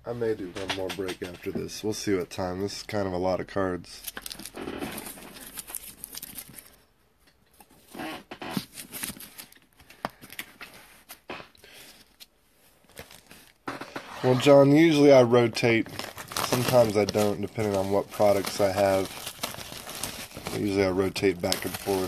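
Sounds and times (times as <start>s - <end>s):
light handling rustle: 16.4s - 22.0s.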